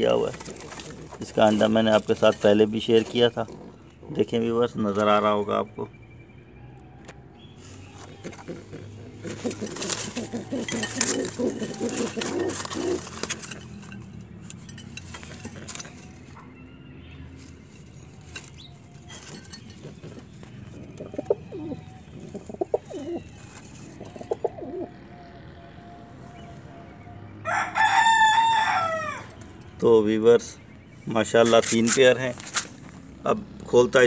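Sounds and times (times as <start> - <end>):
clicks and rustles: 0.0 - 3.6, 9.2 - 16.5, 17.3 - 21.2, 31.4 - 33.1
pigeons cooing: 0.0 - 5.3, 7.3 - 16.7, 17.6 - 29.5
rooster crowing: 27.4 - 29.4.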